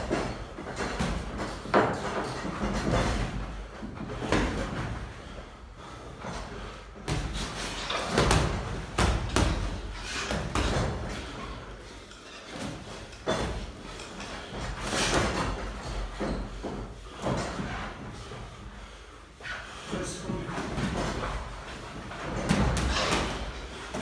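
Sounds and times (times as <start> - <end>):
boxing gloves punch thuds: 7.0 - 11.1.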